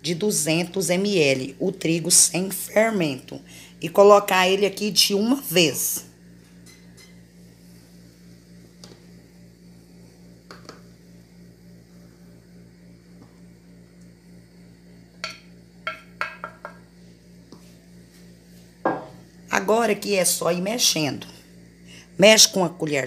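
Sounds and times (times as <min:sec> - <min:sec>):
steady low hum: 0:00.0 - 0:23.0
wooden spoon knocking metal pot: 0:15.2 - 0:16.8, 0:18.9 - 0:19.2.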